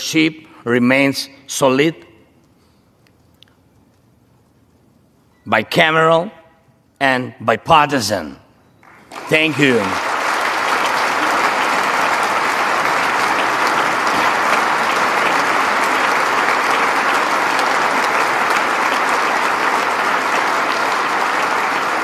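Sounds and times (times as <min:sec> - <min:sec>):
audience applauding: 0:08.8 - 0:22.0.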